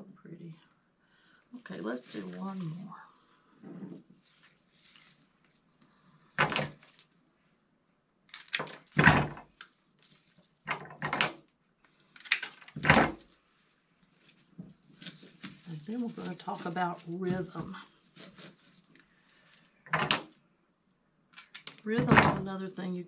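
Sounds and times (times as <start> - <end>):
rustling and snapping of stem: 8.3 - 10.6, 12.1 - 13.4, 14.0 - 19.4, 21.3 - 22.0.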